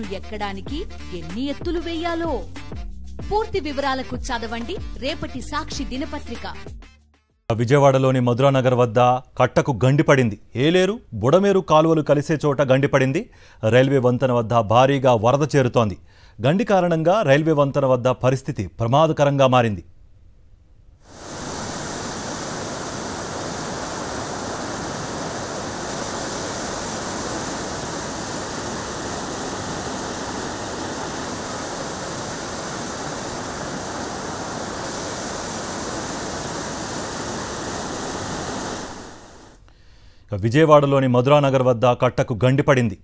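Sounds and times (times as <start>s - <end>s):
floodwater rushing: 21.1s - 39.6s.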